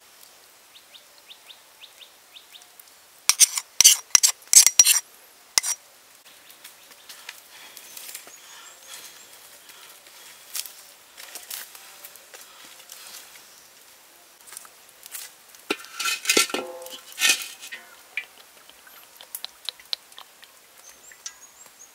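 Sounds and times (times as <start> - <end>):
campfire crackling and popping: 15.0 - 21.8.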